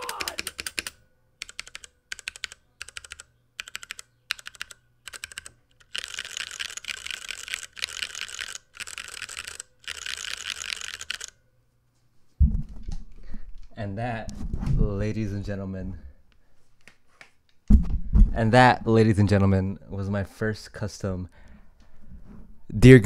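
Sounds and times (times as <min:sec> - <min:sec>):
mechanical keyboard typing: 0:00.0 - 0:11.3.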